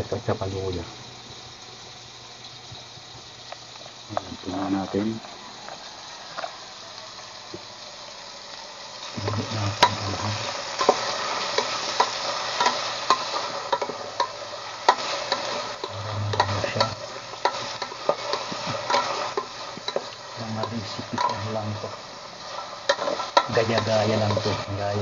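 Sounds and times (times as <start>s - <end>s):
onion sizzling in a pot: 0.0s - 25.0s
wooden spoon scraping a pot: 10.8s - 24.7s.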